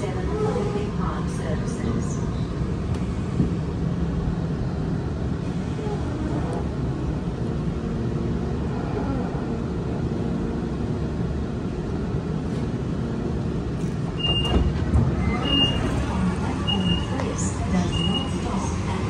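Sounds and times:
train cabin low rumble: 0.0 - 19.0
train clunks: 13.6 - 19.0.

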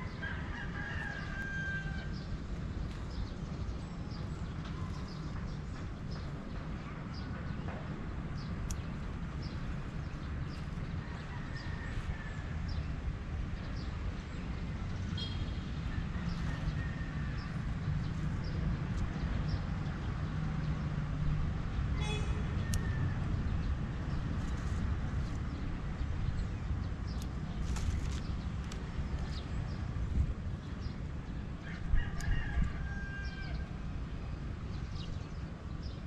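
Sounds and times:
steady low rumble: 2.0 - 32.8.

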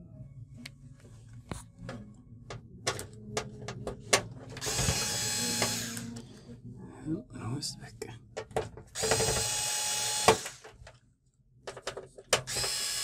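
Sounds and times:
electric screwdriver running: 4.6 - 6.2, 9.0 - 10.7, 12.5 - 13.0.

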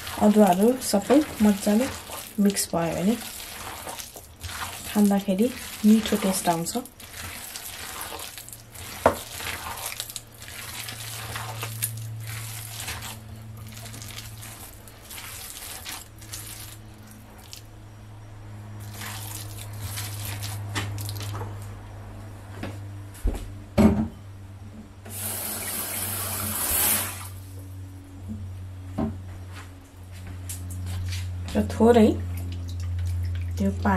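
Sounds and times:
hands squelching wet mince: 0.0 - 17.7, 18.8 - 21.5, 32.2 - 33.9
steady low hum: 0.0 - 25.1, 27.2 - 33.9.

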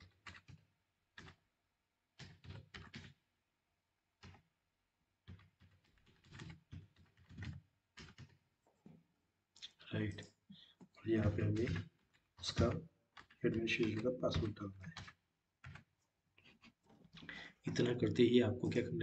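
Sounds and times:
typing on computer keyboard: 0.0 - 1.4, 2.2 - 3.2, 4.2 - 4.5, 5.2 - 8.4, 10.5 - 18.9.

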